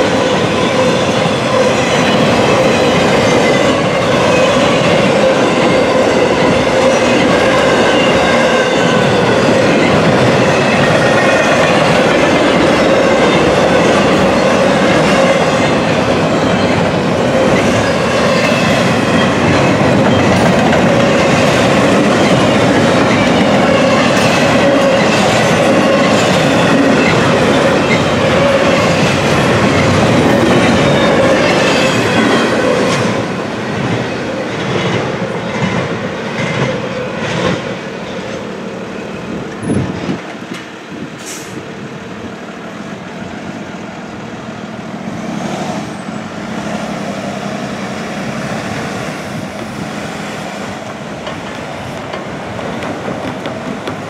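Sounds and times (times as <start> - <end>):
train wheel squeal: 0.0 - 33.3, 45.1 - 54.0
train wheels clickety-clack: 0.0 - 38.6, 39.4 - 41.6, 47.8 - 54.0
road traffic: 0.0 - 54.0.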